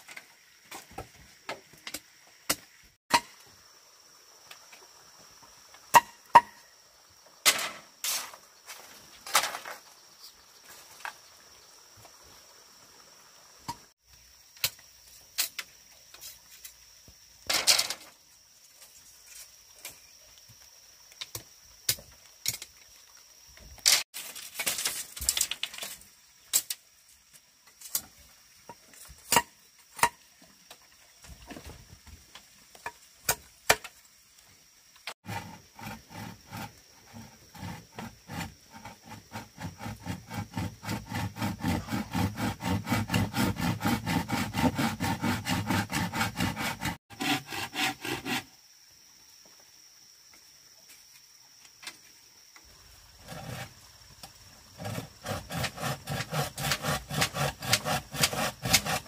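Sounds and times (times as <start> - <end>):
stones and bamboo clattering: 7.4 - 11.3, 17.4 - 18.2, 23.6 - 34.0
machete chopping bamboo: 29.3 - 30.2, 54.9 - 59.0.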